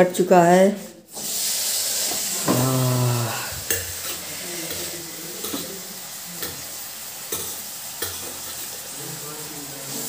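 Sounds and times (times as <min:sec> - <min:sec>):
onion sizzling in hot oil: 0:00.2 - 0:10.0
utensil clicking against pan: 0:07.3 - 0:08.6.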